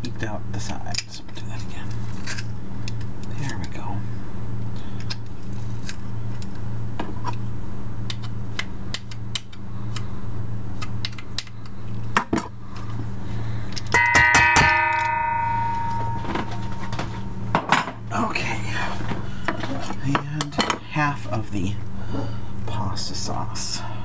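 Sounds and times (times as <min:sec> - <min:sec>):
steady low hum: 0:00.0 - 0:24.0
metal bowl ringing when knocked: 0:14.0 - 0:17.2.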